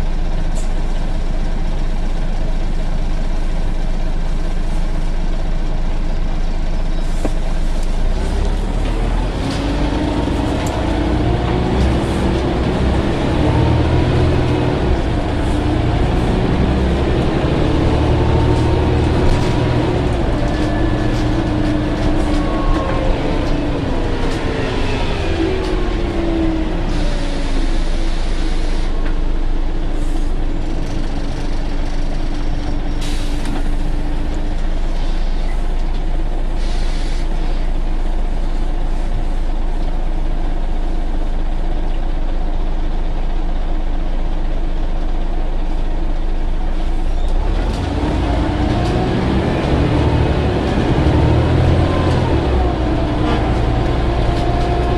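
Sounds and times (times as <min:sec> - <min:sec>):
bus engine rumble: 0:00.0 - 0:54.9
air brakes hissing: 0:26.9 - 0:29.0, 0:32.9 - 0:34.0, 0:34.9 - 0:35.7, 0:36.5 - 0:37.7.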